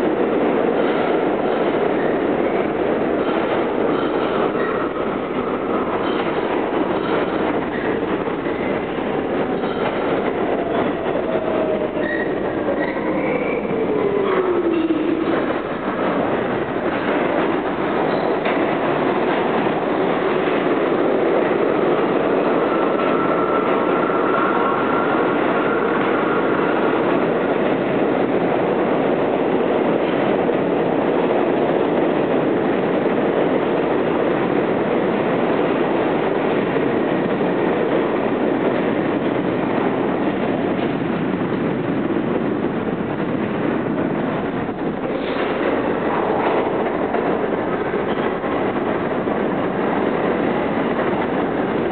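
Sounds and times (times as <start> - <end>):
subway train rumble: 0.0 - 51.9.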